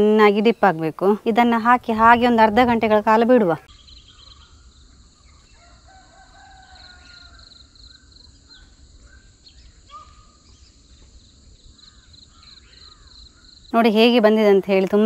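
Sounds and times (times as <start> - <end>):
birds calling: 0.0 - 15.0
insects chirping: 0.0 - 15.0.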